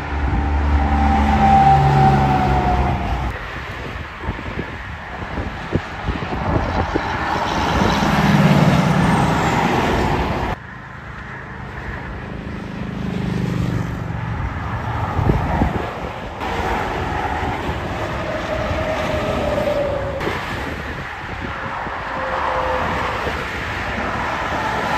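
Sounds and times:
truck passing: 0.0 - 3.5, 6.4 - 11.0, 11.6 - 24.9
highway traffic rumble: 0.0 - 24.9.

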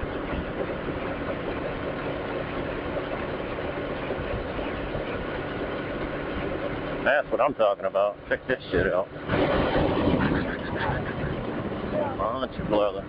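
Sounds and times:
wind noise: 0.0 - 7.0, 8.7 - 13.0
motorcycle engine cruising: 8.2 - 13.0.

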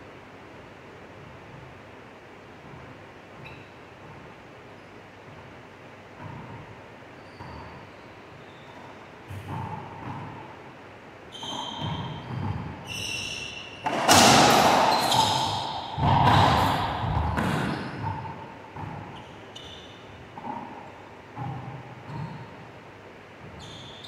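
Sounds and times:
sneakers squeaking on hardwood: 2.6 - 22.8, 23.4 - 24.0
echoing racquetball strikes: 8.7 - 22.8.

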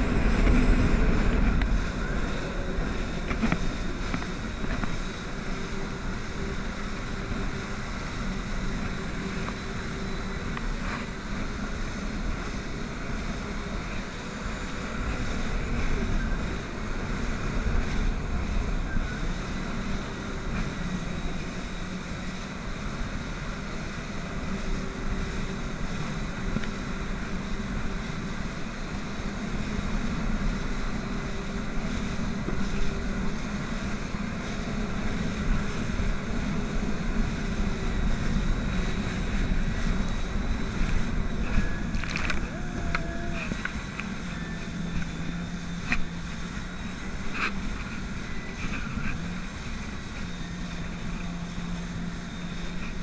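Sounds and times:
jet ski engine hum: 0.0 - 53.0
wind buffeting microphone: 0.0 - 53.0.

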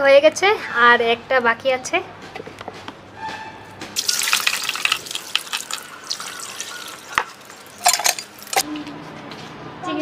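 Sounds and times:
water splashing in a bowl: 4.0 - 8.6.

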